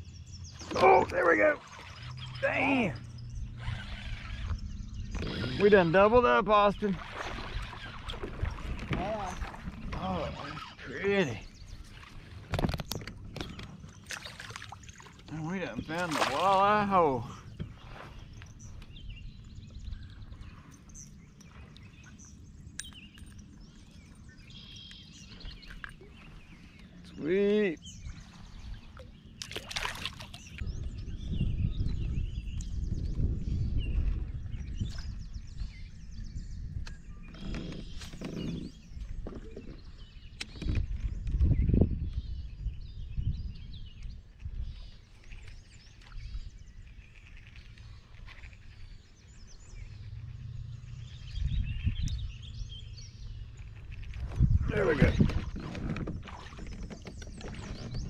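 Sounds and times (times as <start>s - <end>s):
bird trill: 0.0s - 6.0s
birds chirping: 0.0s - 58.0s
low wind rumble on microphone: 1.8s - 58.0s
low background rumble: 48.9s - 54.7s.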